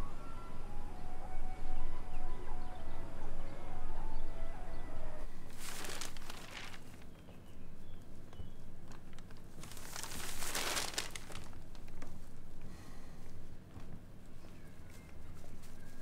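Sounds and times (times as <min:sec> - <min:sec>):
newspaper pages rustling: 0:05.4 - 0:07.2, 0:08.8 - 0:12.4.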